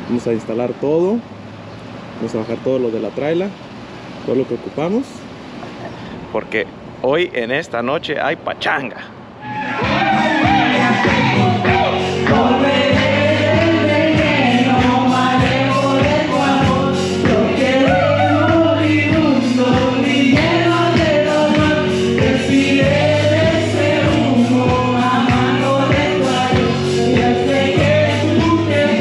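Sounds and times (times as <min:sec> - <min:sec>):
backing track with steady beat: 0:09.6 - 0:29.0
man singing into microphone: 0:10.1 - 0:29.0
woman singing into microphone: 0:10.6 - 0:29.0.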